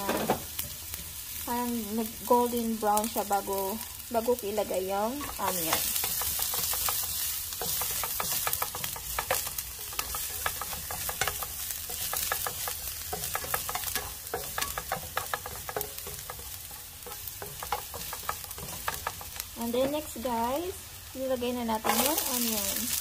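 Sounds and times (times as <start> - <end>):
garlic sizzling in a pan: 0.0 - 23.0
spatula clicking and scraping: 5.2 - 20.0.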